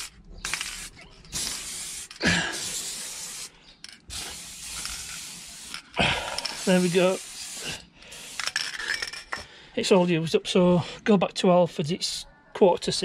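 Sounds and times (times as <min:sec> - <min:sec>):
spray paint can hissing: 0:00.0 - 0:08.6.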